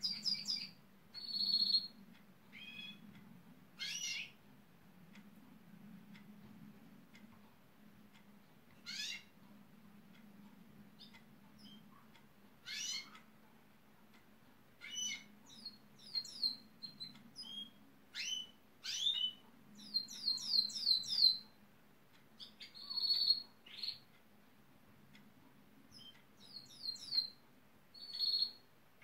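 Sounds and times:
canary singing: 0.0s - 3.2s, 3.8s - 4.4s, 8.8s - 9.3s, 11.0s - 12.0s, 12.6s - 13.3s, 14.8s - 21.6s, 22.4s - 24.2s, 25.8s - 28.7s.

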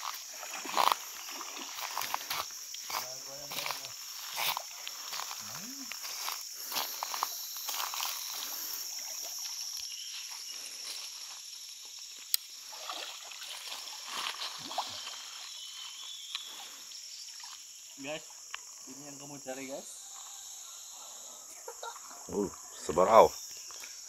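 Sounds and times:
water sloshing and splashing: 0.0s - 2.5s, 12.6s - 15.5s
crickets and insects chirping: 0.0s - 24.0s.

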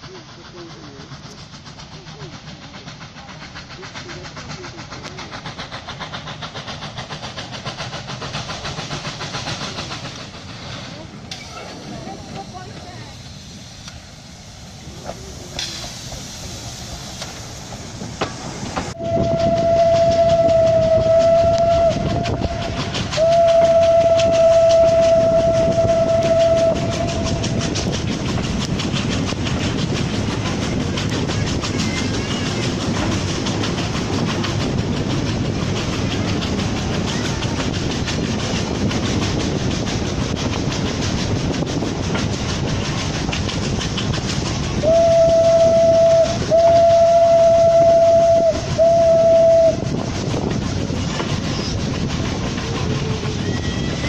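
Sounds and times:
train rumble: 0.0s - 54.0s
wheels clacking over rail joints: 0.0s - 54.0s
steam locomotive whistle: 18.9s - 27.8s, 44.8s - 50.0s.

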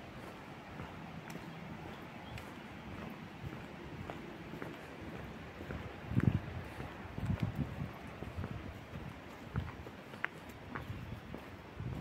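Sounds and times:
footsteps on a path: 0.0s - 12.0s
low wind rumble on microphone: 0.0s - 12.0s.

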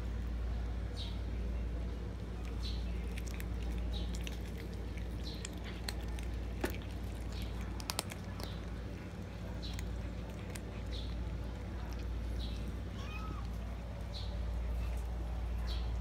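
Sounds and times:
cats chewing: 0.0s - 16.0s
steady low hum: 0.0s - 16.0s.

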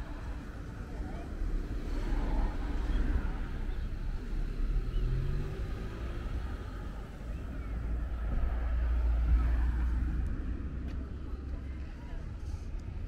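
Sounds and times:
car passing by: 1.6s - 10.8s.

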